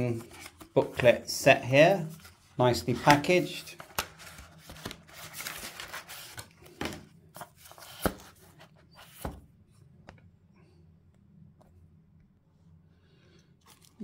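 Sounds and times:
cardboard and paper rustling: 0.0 - 1.3, 2.0 - 9.4.

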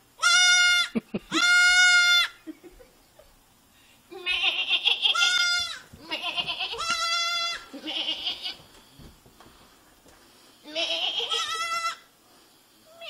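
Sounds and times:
goat kid bleating: 0.2 - 2.4, 4.1 - 8.6, 10.6 - 12.1.

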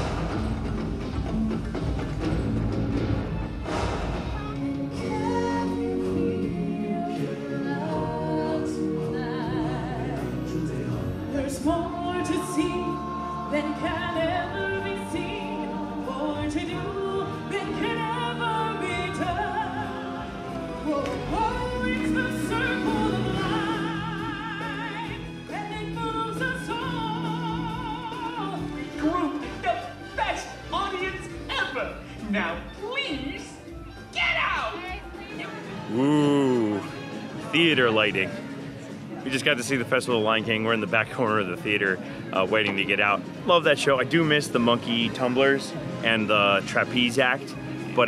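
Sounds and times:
drum hits: 0.0 - 4.5
orchestral backing music: 0.0 - 48.0
voices singing with vibrato: 4.9 - 28.8.

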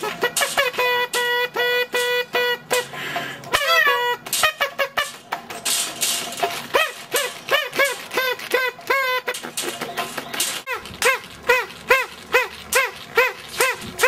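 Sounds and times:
bird squawks: 6.7 - 14.0.

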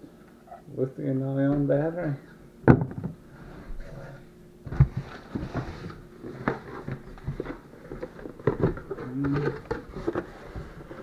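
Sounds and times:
dull thump on wooden table: 2.7 - 3.2.

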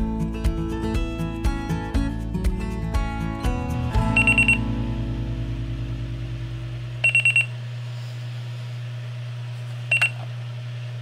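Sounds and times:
alarm clock beeping: 4.1 - 4.6, 7.0 - 7.5.

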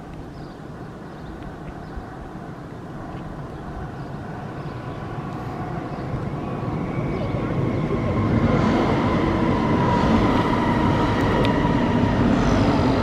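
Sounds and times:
electric train rumble with whine: 0.0 - 13.0.

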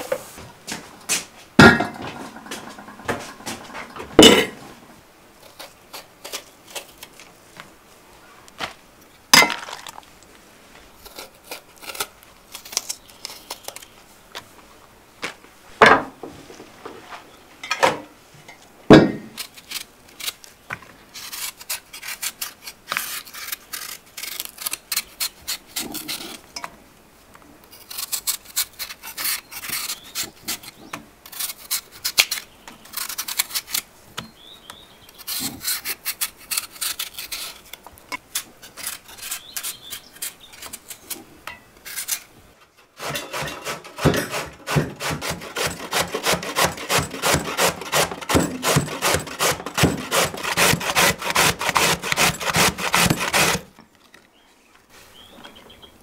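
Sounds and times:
rasping scraping strokes: 43.0 - 53.7.

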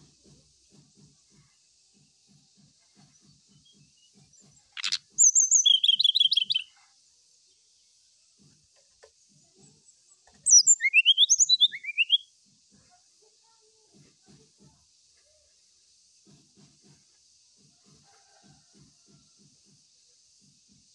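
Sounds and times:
bird trilled song: 4.7 - 6.7, 10.3 - 12.3.

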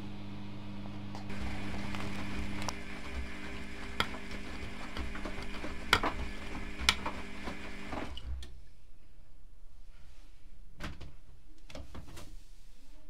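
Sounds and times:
washing machine motor whine: 0.0 - 8.4.

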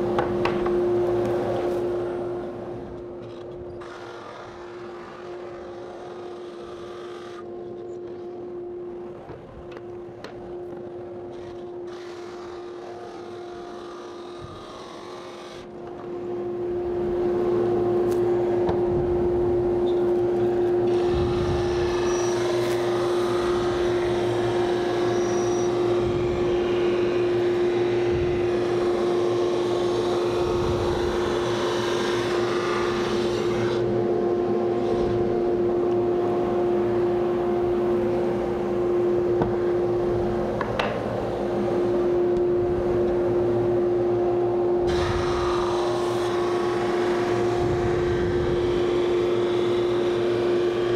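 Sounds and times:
sander motor hum: 0.0 - 50.9.

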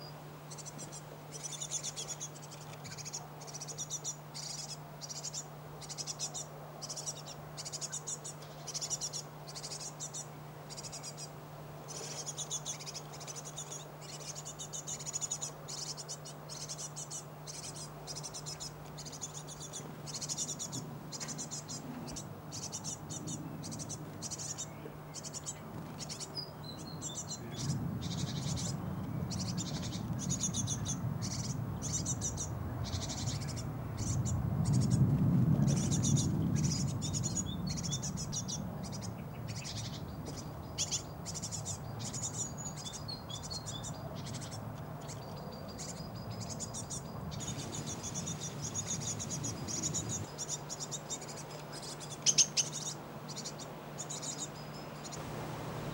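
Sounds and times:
nestlings chirping: 0.0 - 55.9
steady low hum: 0.0 - 55.9
low rumble: 55.2 - 55.9.

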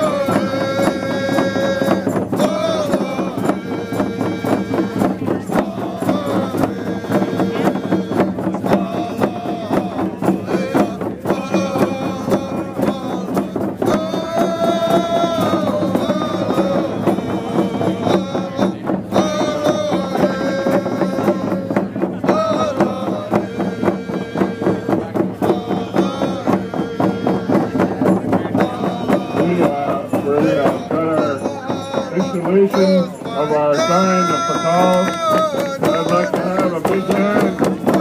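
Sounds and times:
frame hand drums beating: 0.0 - 38.0
group singing in unison: 0.0 - 38.0.

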